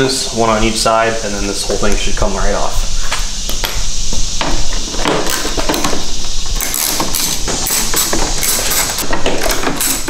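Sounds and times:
hand tools clicking and clattering: 4.4 - 10.0.

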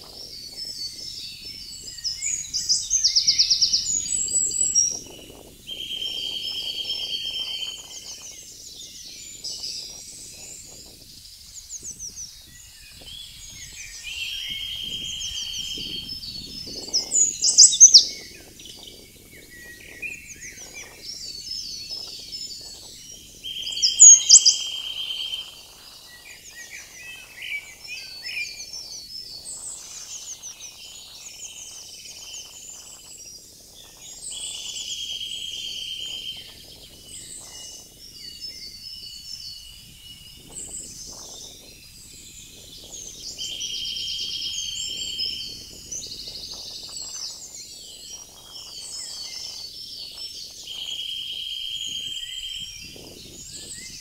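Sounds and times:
songbirds singing: 0.0 - 54.0
bird dry trill: 23.6 - 25.5.

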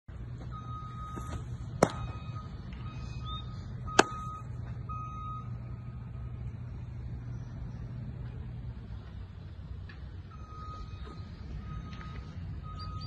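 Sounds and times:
steady low hum: 0.1 - 12.7
baseball bat cracks: 4.0 - 4.3.

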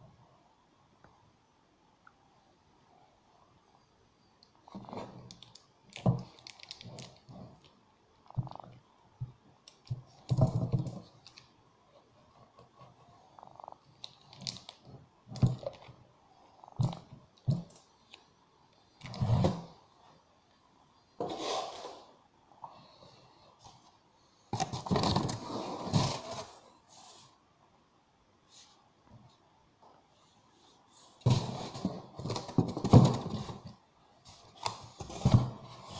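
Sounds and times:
cardboard and plastic rustling: 24.6 - 26.7, 31.2 - 35.9.

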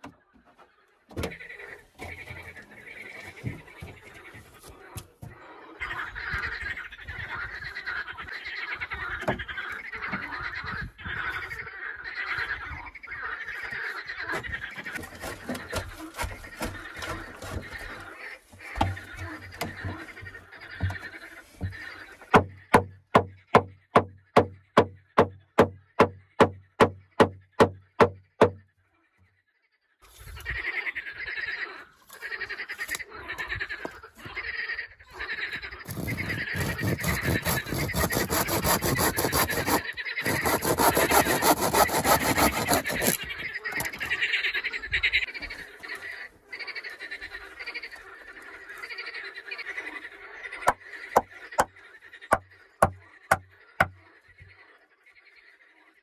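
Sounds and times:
handsaw cutting wood: 15.0 - 17.8, 35.8 - 43.9.

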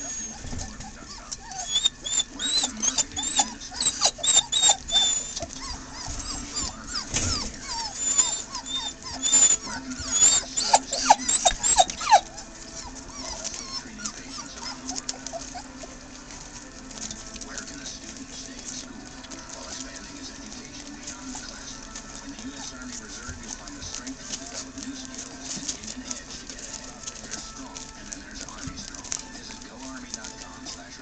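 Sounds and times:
puppies squeaking and whining: 0.0 - 31.0.

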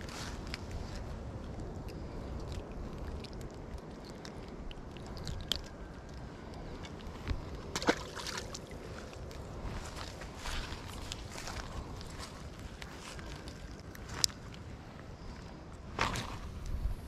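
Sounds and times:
small clicks and handling noise: 0.0 - 7.9, 11.0 - 14.7
steady low rumble: 0.0 - 17.0
fish splashing into water: 7.7 - 9.2.

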